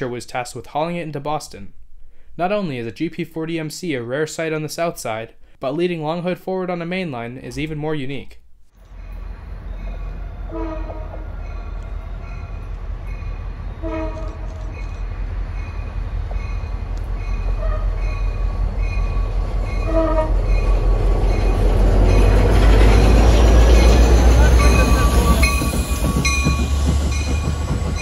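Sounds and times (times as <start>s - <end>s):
locomotive engine and wheel rumble: 8.8s - 28.0s
locomotive horn blasts: 10.4s - 11.8s, 13.8s - 14.5s, 17.6s - 18.1s, 19.8s - 20.5s.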